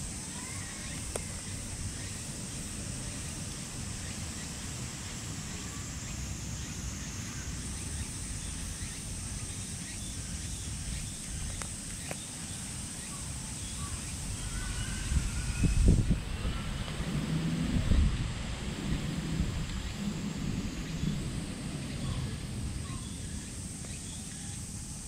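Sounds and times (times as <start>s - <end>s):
high-pitched insect drone: 0.0s - 25.0s
faint bird chirps: 4.0s - 16.9s
wind rumble on microphone: 13.8s - 25.0s.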